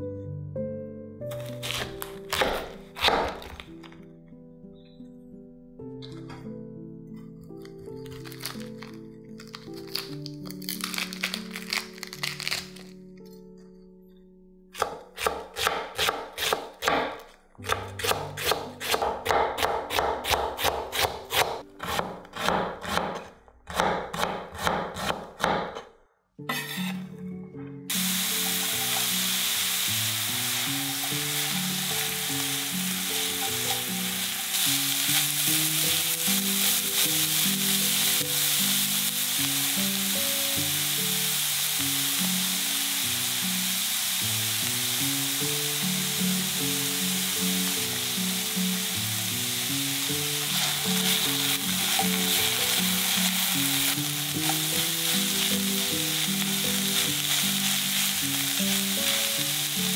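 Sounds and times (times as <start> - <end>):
background music: 0.0 - 25.8, 26.4 - 59.9
knife chopping on wooden board: 1.4 - 3.7, 14.8 - 25.9
vegetables sizzling in oil: 27.9 - 59.9.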